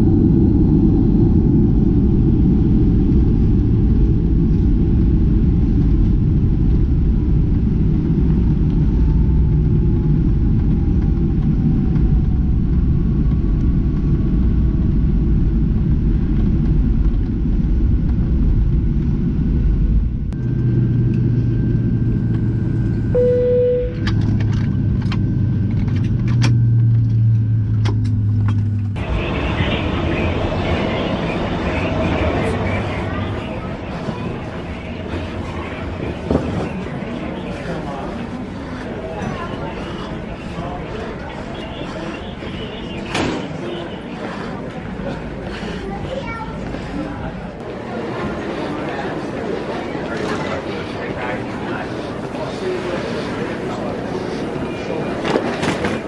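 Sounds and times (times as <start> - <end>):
aircraft rolling rumble: 0.0 - 56.0
jet engine whine: 0.0 - 56.0
brief tone: 20.4 - 24.8.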